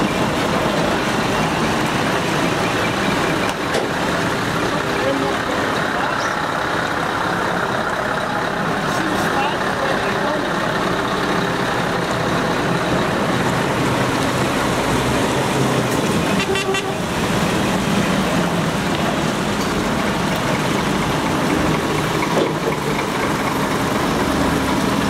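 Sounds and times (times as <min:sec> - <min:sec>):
heavy trucks driving past: 0:00.0 - 0:25.0
truck horn tooting: 0:16.3 - 0:17.2.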